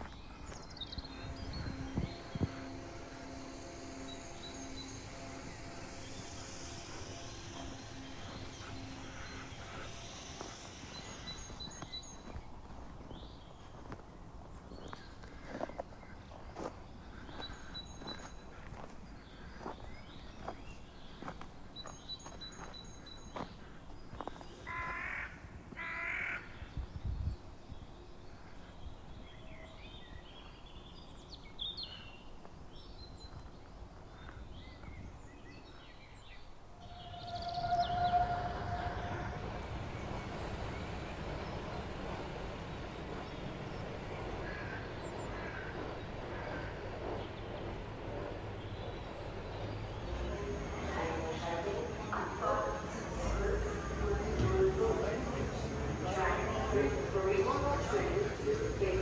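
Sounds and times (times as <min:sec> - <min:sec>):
steady rushing noise: 0:00.0 - 0:21.2
harsh bird calls: 0:36.4 - 0:50.3.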